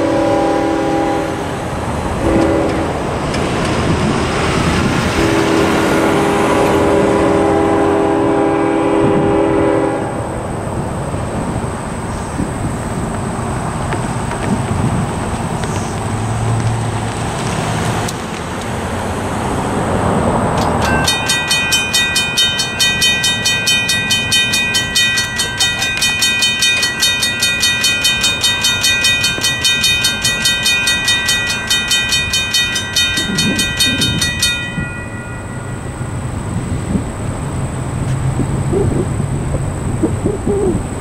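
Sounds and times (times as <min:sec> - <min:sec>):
crossing bells ringing: 0:20.5 - 0:37.5.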